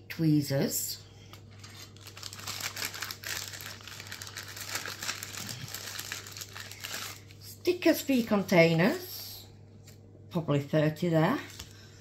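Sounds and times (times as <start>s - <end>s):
plastic bag crinkling: 1.5s - 7.5s.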